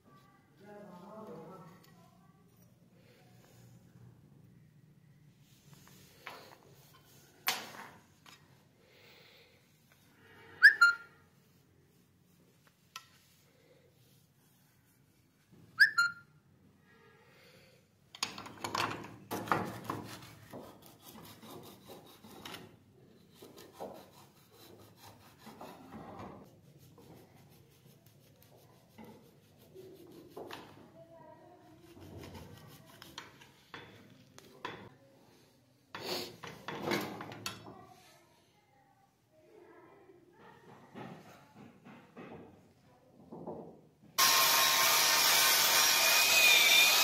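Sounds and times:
file scraping on steel: 0:19.8 - 0:30.6, 0:31.6 - 0:34.0, 0:44.2 - 0:47.0.

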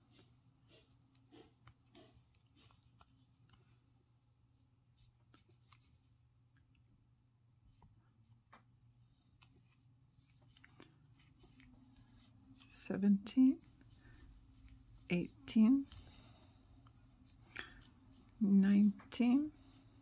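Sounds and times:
low steady hum: 0:00.0 - 0:20.0
crochet hook scratching and clicking: 0:00.7 - 0:03.1.

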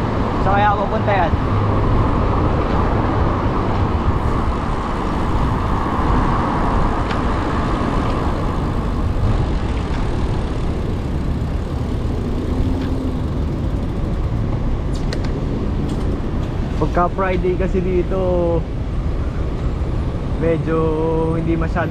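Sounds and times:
passing vehicles rushing: 0:00.0 - 0:21.9
deep uneven rumble: 0:01.4 - 0:17.3.

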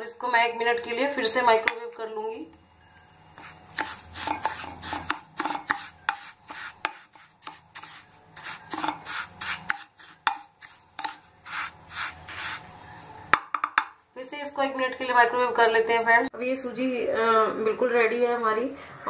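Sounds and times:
spatula scraping glass dish: 0:02.9 - 0:12.7.

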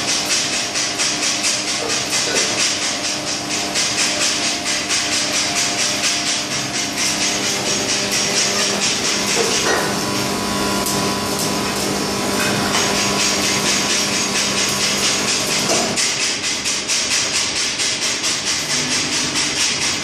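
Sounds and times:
welding arc crackling: 0:00.0 - 0:20.0
steady hum: 0:06.0 - 0:16.8.

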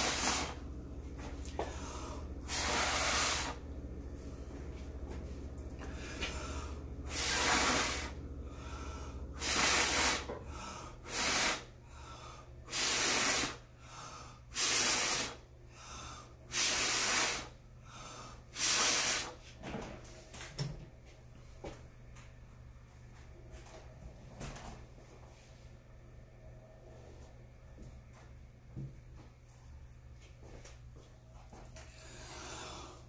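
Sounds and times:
person blowing puffs of breath: 0:01.6 - 0:03.6, 0:05.8 - 0:19.4, 0:31.9 - 0:33.0.

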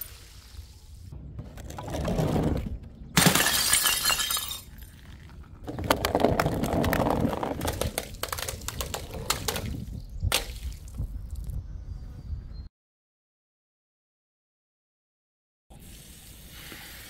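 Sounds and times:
glass shards clinking: 0:03.2 - 0:04.7
glass shattering: 0:03.2 - 0:04.8.

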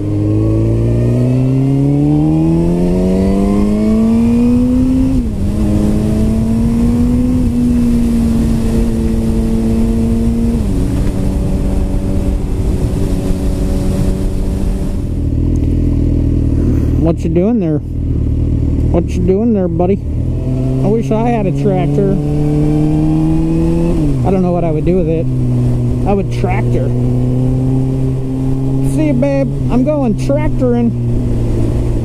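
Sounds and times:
wind rushing: 0:00.0 - 0:17.0, 0:21.4 - 0:29.7
motorcycle engine accelerating: 0:00.0 - 0:32.0.

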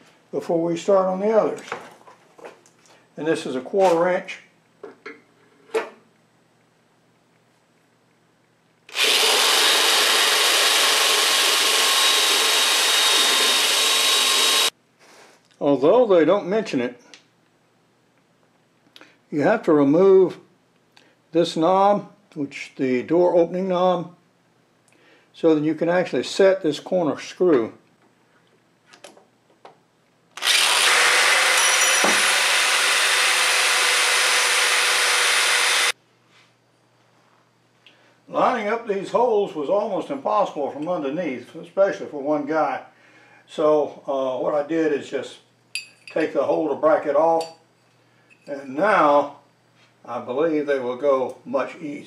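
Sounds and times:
electric drill drilling: 0:08.9 - 0:14.7, 0:30.4 - 0:36.0.

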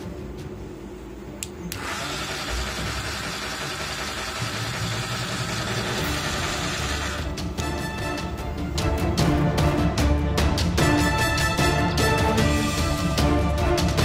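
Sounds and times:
background music: 0:00.0 - 0:14.0
small electric motor whirring: 0:01.7 - 0:07.3.

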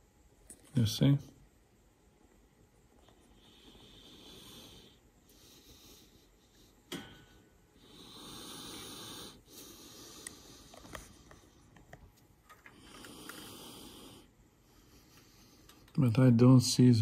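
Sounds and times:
person breathing: 0:03.2 - 0:11.7, 0:12.6 - 0:15.9.

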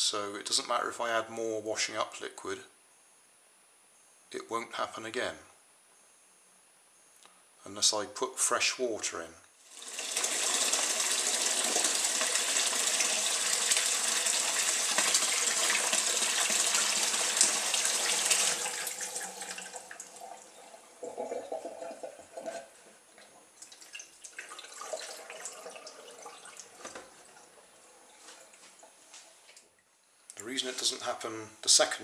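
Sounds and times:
tap running into bowl: 0:24.4 - 0:27.2.

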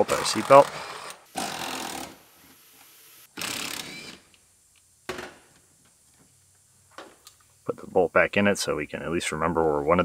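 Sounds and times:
power wrench whirring: 0:00.2 - 0:02.2, 0:03.3 - 0:04.2.

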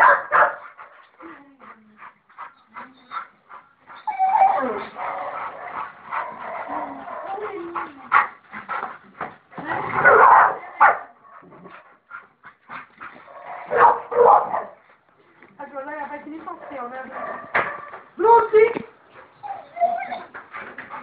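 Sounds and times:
dogs barking: 0:00.0 - 0:00.9, 0:04.9 - 0:08.3, 0:10.0 - 0:11.2, 0:13.3 - 0:14.8, 0:16.6 - 0:18.0
dogs whimpering: 0:02.6 - 0:08.1, 0:19.3 - 0:21.0.

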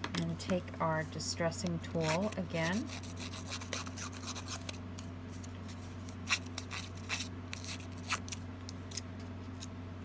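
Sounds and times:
tool scraping paper edge: 0:01.9 - 0:04.8, 0:06.2 - 0:08.3.

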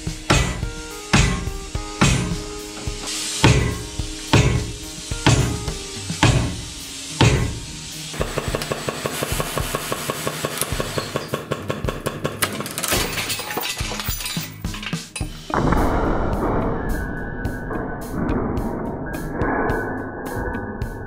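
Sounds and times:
hammer blows on metal: 0:00.3 - 0:11.8.

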